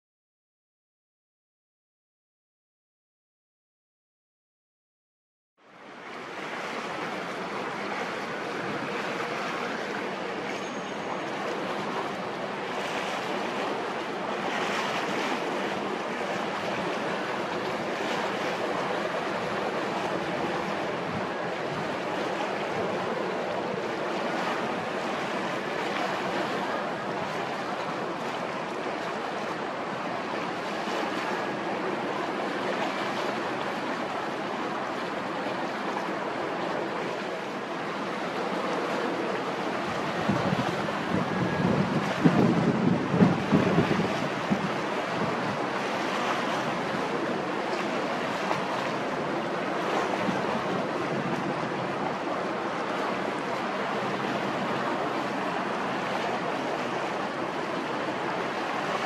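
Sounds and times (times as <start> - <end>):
small waves washing: 5.7 - 59.0
wind blowing: 6.6 - 59.0
wind buffeting microphone: 38.2 - 57.2.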